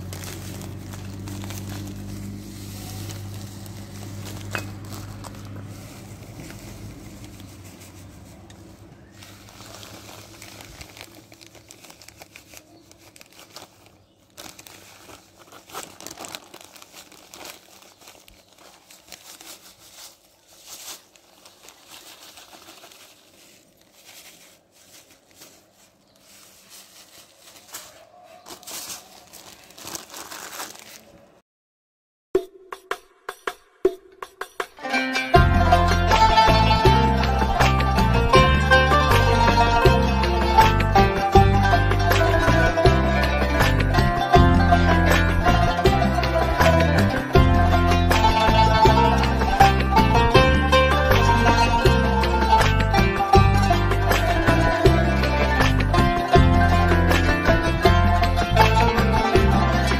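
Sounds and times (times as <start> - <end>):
grains poured into glass bowls: 0.0 - 11.7
plastic bag crinkling: 0.0 - 31.4.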